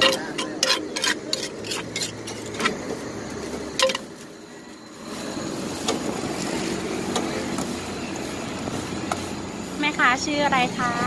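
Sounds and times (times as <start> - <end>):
spoon clinking clay mortar: 0.0 - 2.5
traffic rumble: 0.0 - 11.0.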